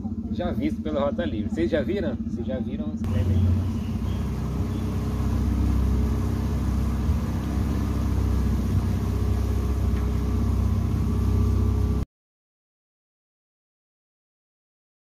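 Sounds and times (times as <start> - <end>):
boat motor running: 0.0 - 12.0.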